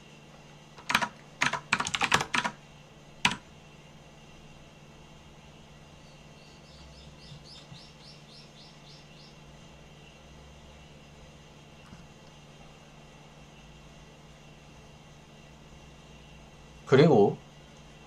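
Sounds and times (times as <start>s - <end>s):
keyboard keystrokes: 0.8s - 2.6s, 3.2s - 3.4s
bird chirping: 6.0s - 9.4s.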